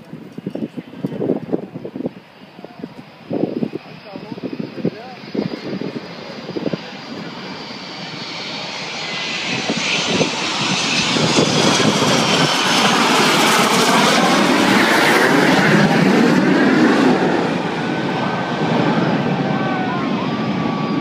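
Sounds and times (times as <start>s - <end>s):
jet engines rumbling: 0.0s - 21.0s.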